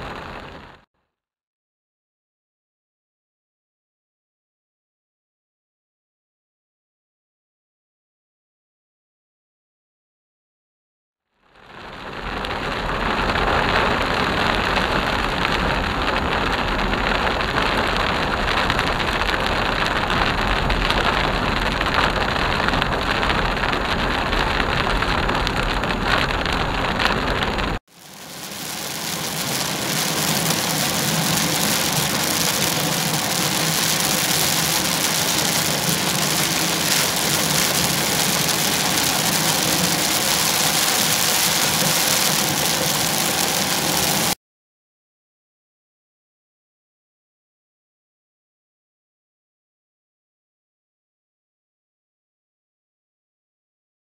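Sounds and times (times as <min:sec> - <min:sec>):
rain on a moving car: 0:00.0 - 0:00.8, 0:11.5 - 0:44.4
tyres on wet road: 0:00.0 - 0:00.8, 0:11.6 - 0:44.4.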